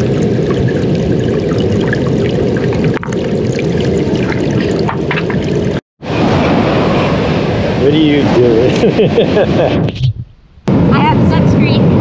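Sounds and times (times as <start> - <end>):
running water: 0.0 - 5.8.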